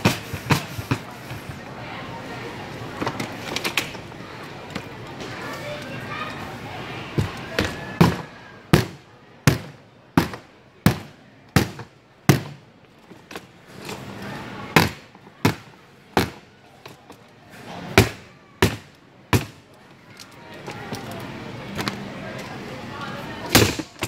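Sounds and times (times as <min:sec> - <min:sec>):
heavy blows on hard suitcase: 0:00.0 - 0:01.6.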